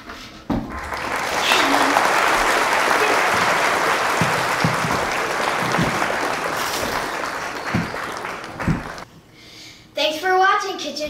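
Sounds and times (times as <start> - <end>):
crowd applauding: 0.7 - 9.1.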